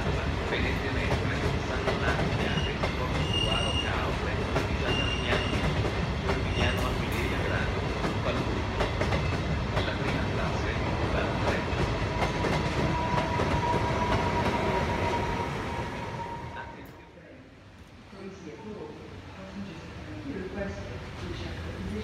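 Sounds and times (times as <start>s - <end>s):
train wheels clicking over joints: 0.0s - 15.0s.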